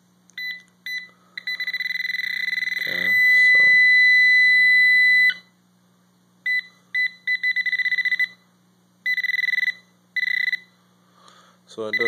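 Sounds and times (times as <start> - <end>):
short beeps: 0.4 - 5.5
steady high tone: 1.4 - 5.5.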